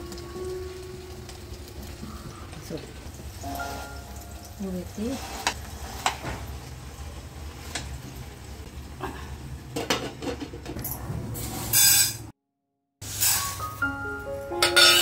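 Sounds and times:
cutlery clinking on pans: 0:14.6 - 0:15.0.

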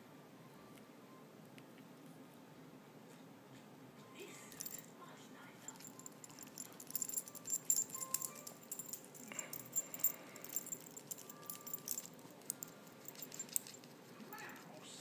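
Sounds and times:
metallic jingling and rattling: 0:04.5 - 0:04.9, 0:05.6 - 0:14.7.

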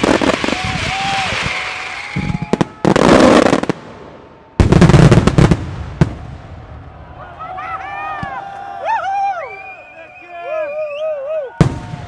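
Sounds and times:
fireworks bangs and crackling: 0:00.0 - 0:07.3, 0:11.5 - 0:12.0
faint firework whistle: 0:00.4 - 0:03.4.

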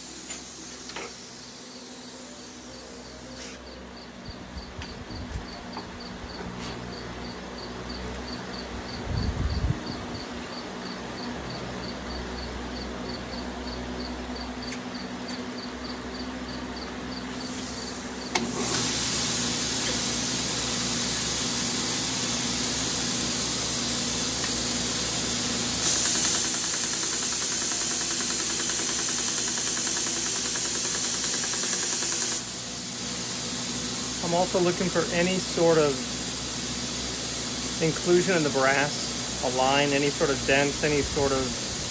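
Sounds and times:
belt sander running: 0:00.0 - 0:03.3, 0:17.4 - 0:41.9
steady hum: 0:00.0 - 0:16.6.

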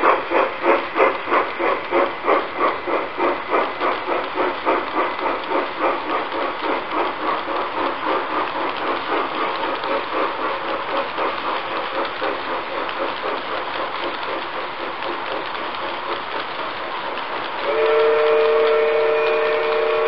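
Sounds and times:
model train wheels clattering: 0:00.0 - 0:20.0
model steam whistle: 0:17.6 - 0:20.0.

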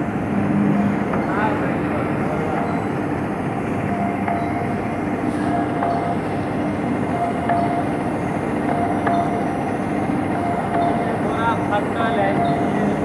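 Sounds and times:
belt conveyor running: 0:00.0 - 0:13.0.

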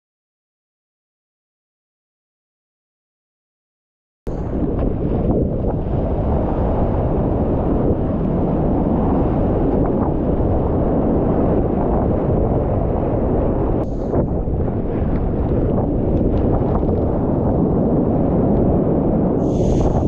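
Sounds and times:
wind buffeting microphone: 0:04.3 - 0:20.0
surf rushing: 0:19.1 - 0:20.0.

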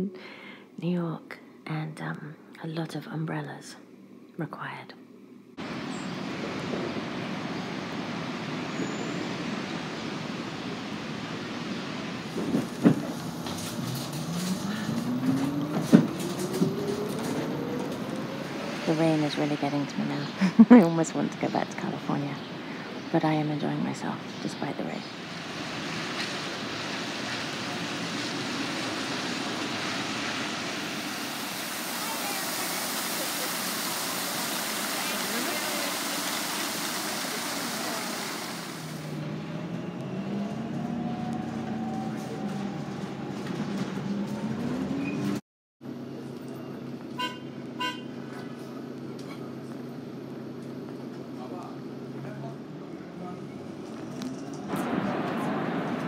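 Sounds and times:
rain on a wet street: 0:05.6 - 0:19.4, 0:24.6 - 0:45.4, 0:53.6 - 0:56.0
traffic on a wet road: 0:05.6 - 0:56.0.

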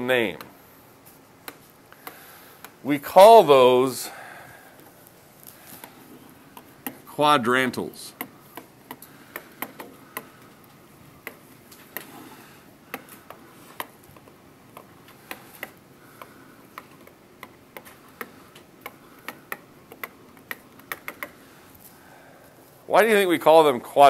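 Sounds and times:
pen tapping on whiteboard: 0:08.2 - 0:10.5.

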